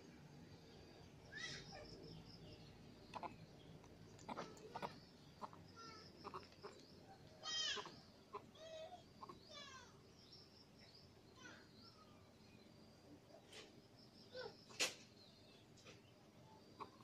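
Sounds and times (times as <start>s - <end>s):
high-pitched animal calls: 4.3s - 6.8s, 7.4s - 9.8s.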